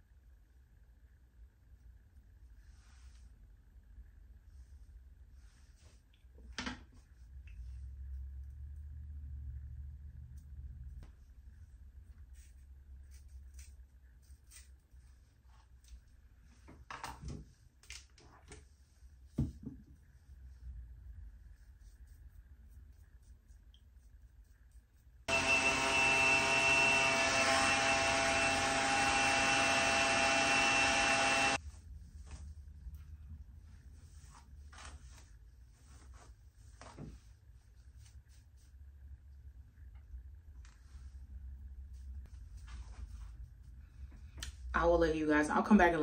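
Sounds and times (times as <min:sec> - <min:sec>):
hair dryer blowing: 0:25.3 - 0:31.6
hands rustling hair: 0:31.6 - 0:39.0, 0:41.9 - 0:44.6.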